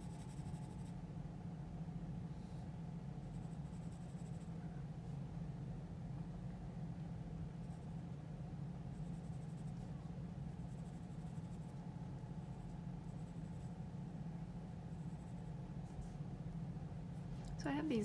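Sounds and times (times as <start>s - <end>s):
steady low hum: 0.0s - 18.0s
pencil scratching on paper: 8.9s - 9.9s, 10.6s - 11.8s.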